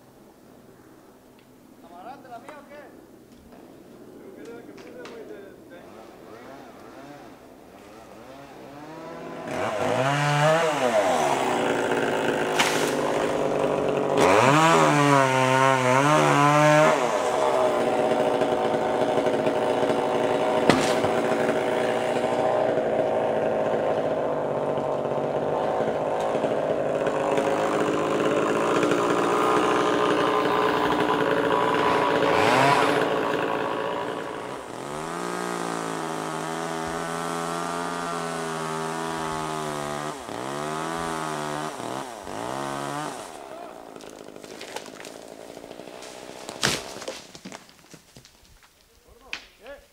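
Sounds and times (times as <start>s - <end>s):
chainsaw running: 5.8s - 47.8s.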